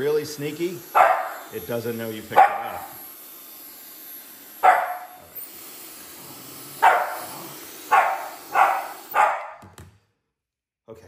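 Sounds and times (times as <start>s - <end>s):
hair dryer running: 0.0s - 9.8s
dog barking: 1.0s - 1.4s, 2.3s - 3.0s, 4.6s - 5.2s, 6.8s - 9.6s.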